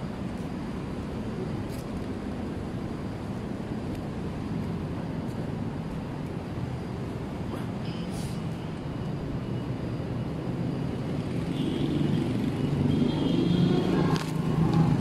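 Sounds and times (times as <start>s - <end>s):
traffic engine rumble: 0.0s - 15.0s.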